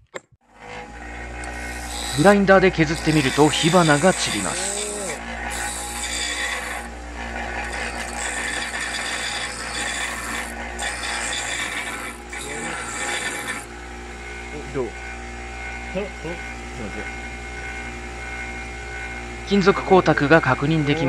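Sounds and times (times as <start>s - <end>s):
bench grinder motor hum: 0.4s - 21.0s
metal rasping on grinding wheel: 0.5s - 14.5s.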